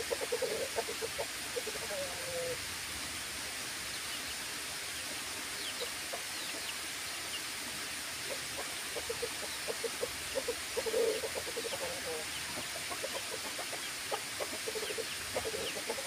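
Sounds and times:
chickens clucking: 0.0 - 2.6, 8.2 - 16.0
steady hiss: 0.0 - 16.0.

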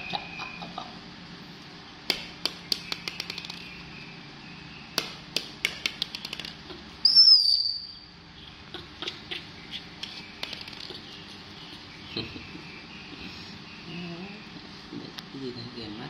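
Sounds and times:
sharp clicks and taps: 2.1 - 3.7, 5.0 - 6.8.

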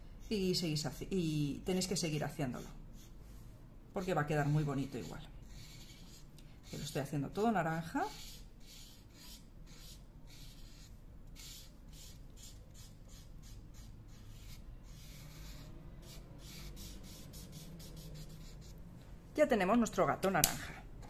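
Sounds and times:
marker rubbing on paper: 4.0 - 18.8.

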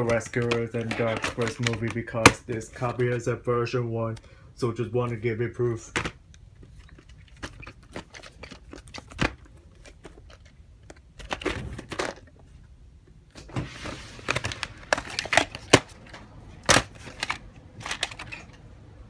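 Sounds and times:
plastic cases clicking: 0.0 - 3.2, 5.9 - 12.4, 14.2 - 18.7.

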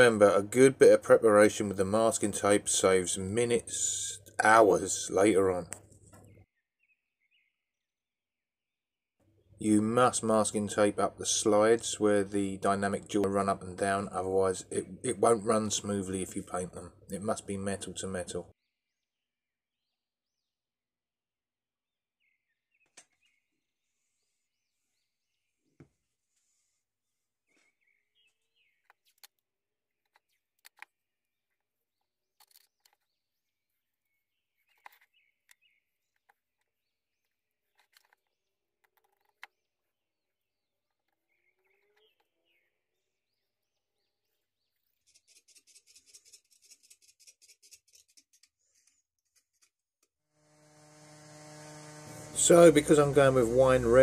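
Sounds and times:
faint bird chirps: 27.5 - 29.2, 31.5 - 49.7.

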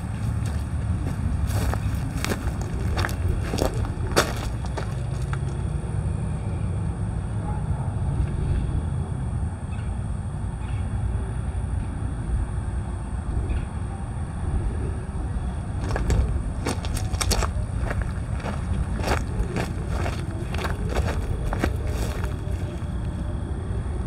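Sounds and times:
footsteps on gravel: 0.0 - 5.6, 15.8 - 23.0
diesel locomotive idling: 0.0 - 24.0.

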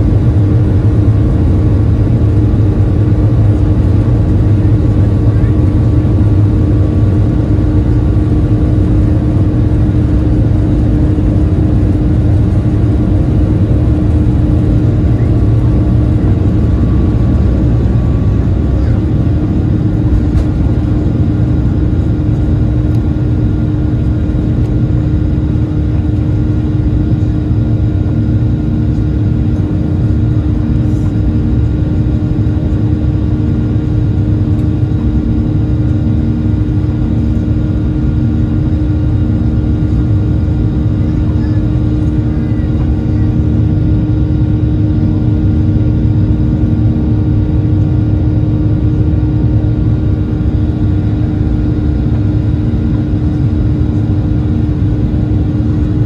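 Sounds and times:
jet engines roaring: 0.0 - 56.0.

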